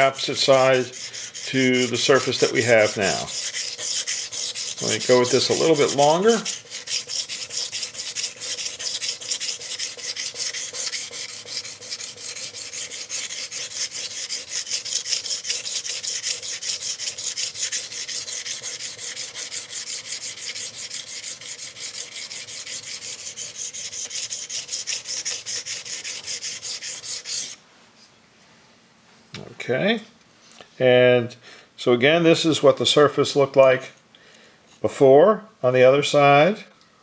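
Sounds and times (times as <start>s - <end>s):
knife scraping on sharpening plate: 0.5s - 27.6s.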